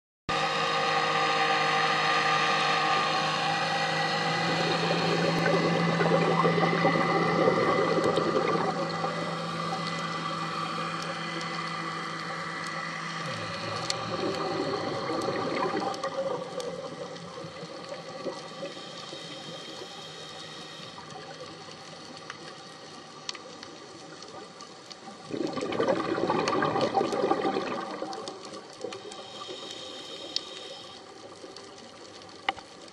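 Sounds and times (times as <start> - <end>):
underwater mechanical hum: 0.3 - 32.9
diver's exhaled breath bubbling: 4.2 - 20.9, 25.2 - 31.1
small clicks: 15.8 - 25.1, 27.6 - 32.9
hiss: 18.2 - 22.8, 28.8 - 31.9.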